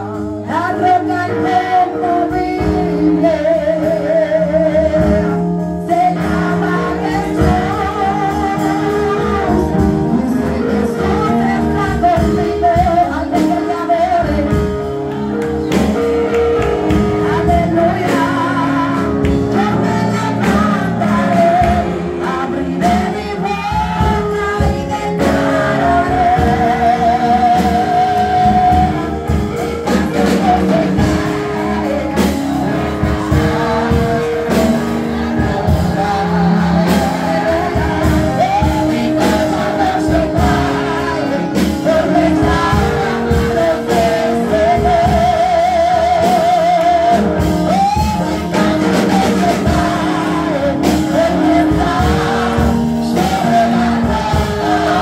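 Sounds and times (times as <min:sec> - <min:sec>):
woman singing into microphone: 0:00.0 - 0:15.6, 0:16.9 - 0:55.0
instrumental backing chords: 0:00.0 - 0:55.0
percussive beat: 0:14.3 - 0:26.8, 0:28.5 - 0:45.5, 0:46.2 - 0:55.0.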